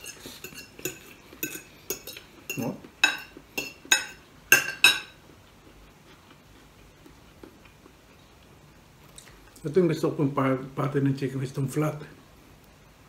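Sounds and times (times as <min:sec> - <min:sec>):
cutlery clinking against a plate: 0:00.0 - 0:05.2.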